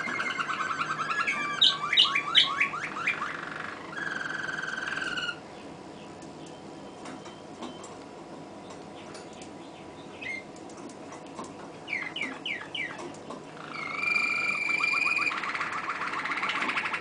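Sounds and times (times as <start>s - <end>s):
canary singing: 0.0s - 6.6s, 9.0s - 10.5s, 11.8s - 17.0s.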